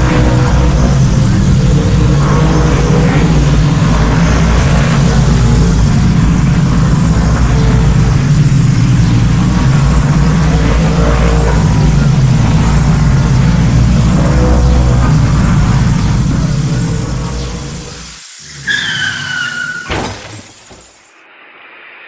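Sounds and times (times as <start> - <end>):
electric motor whir: 0.0 - 19.0.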